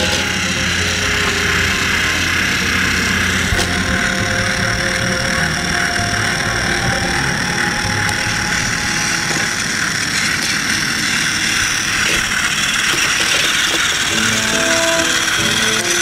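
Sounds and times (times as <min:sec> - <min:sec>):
toy train motor whirring: 0:00.0 - 0:16.0
plastic gear rattle: 0:07.7 - 0:16.0.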